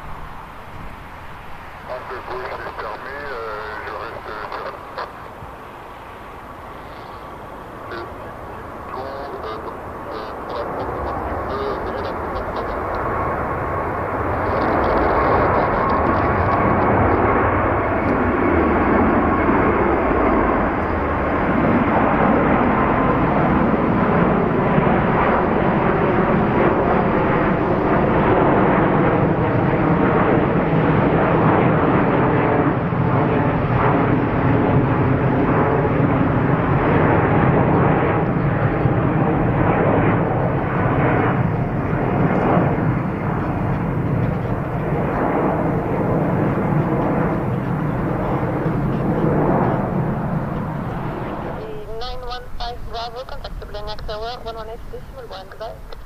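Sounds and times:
faint high engine whine: 0.0 - 56.0
jet airliner engines running: 0.0 - 56.0.

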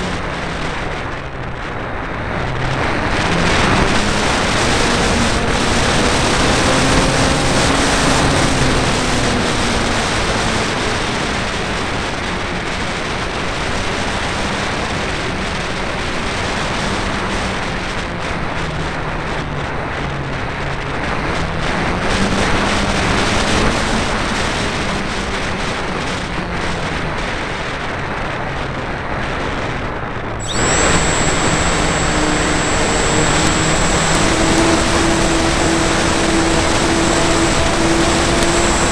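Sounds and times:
steady high whine: 0.0 - 38.9
wind rush: 0.0 - 38.9
model aircraft motor and propeller: 2.7 - 17.6, 21.4 - 27.0, 30.4 - 38.9.

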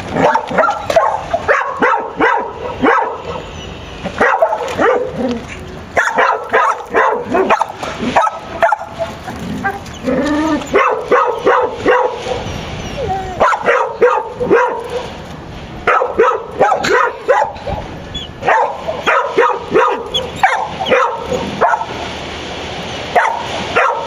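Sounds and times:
dog barking and whining: 0.1 - 15.2, 15.9 - 22.0, 23.2 - 24.0.

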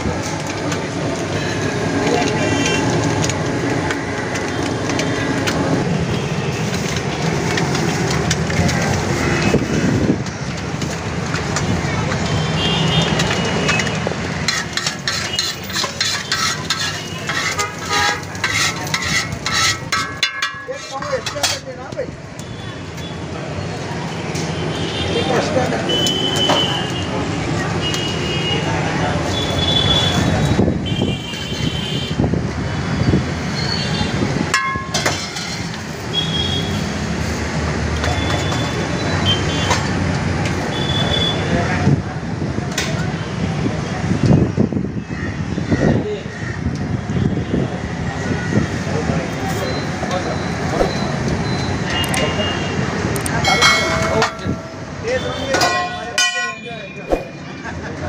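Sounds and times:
low rumble of street traffic: 0.0 - 58.0
metal spatula scraping griddle: 14.4 - 21.6, 34.9 - 35.8.

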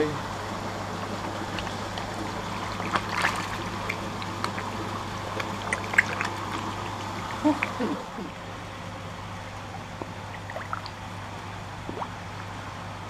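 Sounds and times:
steady low hum: 0.0 - 13.0
fish splashing at water surface: 1.4 - 8.2, 10.0 - 11.2.

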